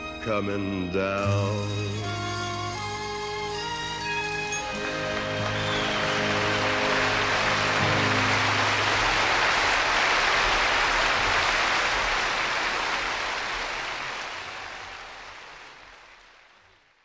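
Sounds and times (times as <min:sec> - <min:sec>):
audience applause: 0:04.7 - 0:17.0.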